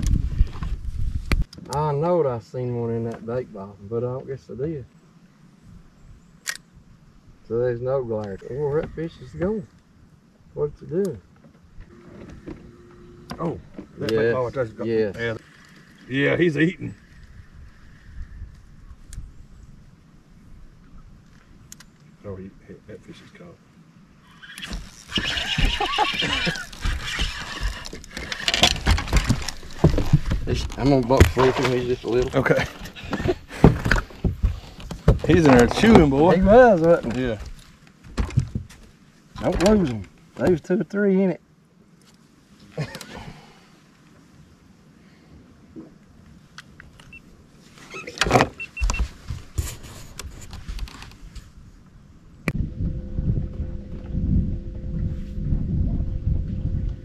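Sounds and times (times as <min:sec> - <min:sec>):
camera handling rubbing and knocks: 0:47.9 - 0:51.5.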